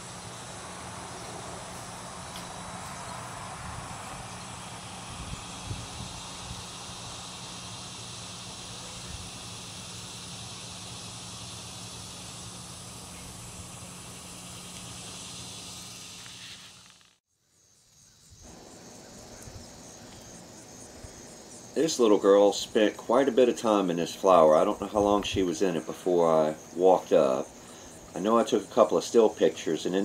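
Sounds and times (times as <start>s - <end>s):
insect hiss: 0.0s - 30.0s.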